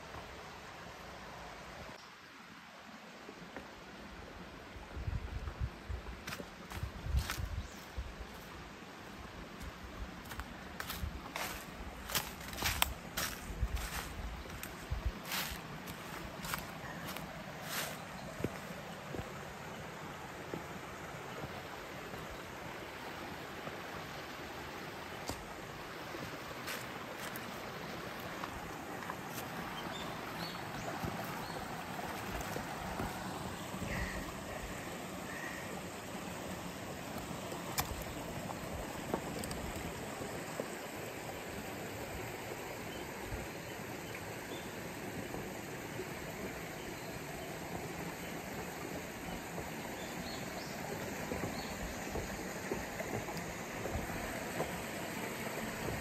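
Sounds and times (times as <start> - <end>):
creek water flowing over stones: 0.0 - 56.0.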